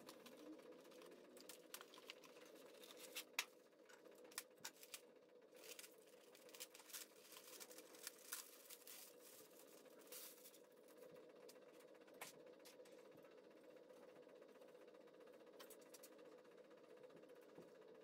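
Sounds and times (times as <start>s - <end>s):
plastic wrap crinkling: 4.2s - 10.6s.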